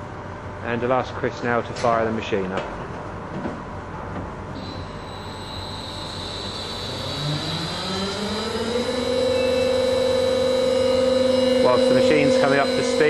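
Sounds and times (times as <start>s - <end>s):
high whine: 4.5s - 13.0s
glass-crushing machine starting up: 4.6s - 13.0s.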